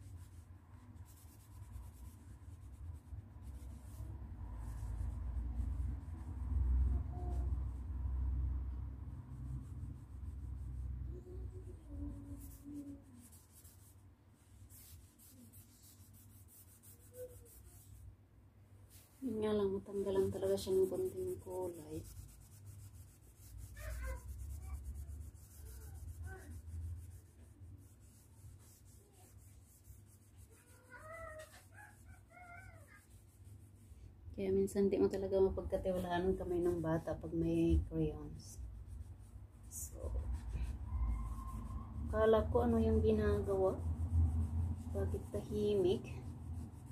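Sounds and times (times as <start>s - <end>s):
cloth rag scrubbing wall: 0.0s - 18.2s, 18.8s - 46.9s
faint high-pitched cries: 23.8s - 24.8s, 30.4s - 33.2s, 40.6s - 42.2s
low steady hum: 33.4s - 46.9s.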